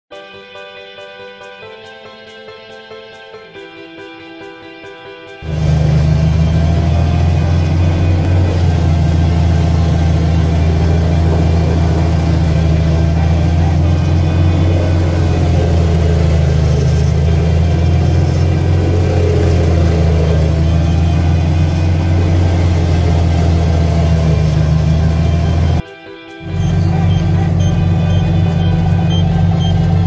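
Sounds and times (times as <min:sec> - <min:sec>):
tractor diesel engine and wood chipper: 0:05.4 - 0:25.8, 0:26.4 - 0:30.0.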